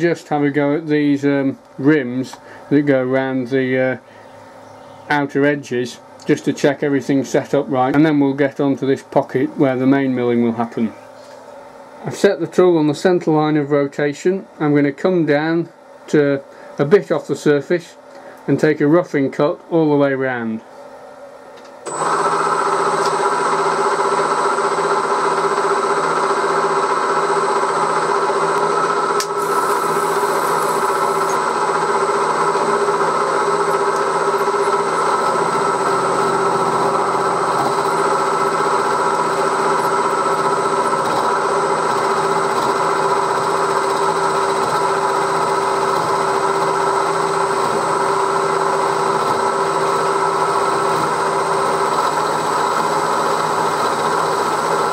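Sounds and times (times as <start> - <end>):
milling machine whining: 21.9 - 54.9.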